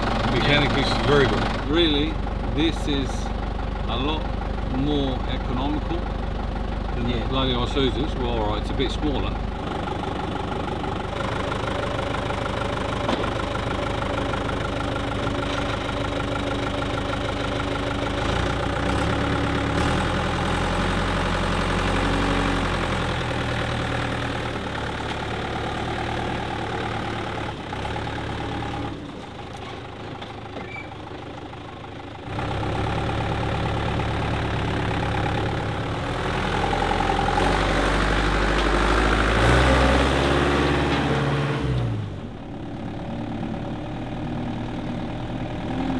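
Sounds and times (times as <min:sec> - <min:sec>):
diesel truck engine idling: 0:00.0 - 0:45.9.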